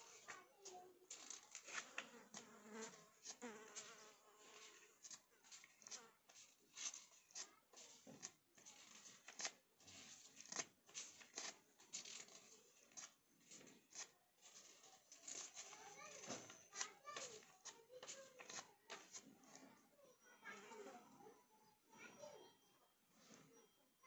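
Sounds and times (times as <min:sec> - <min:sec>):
paper rustling between fingers: 0:01.1 - 0:19.6.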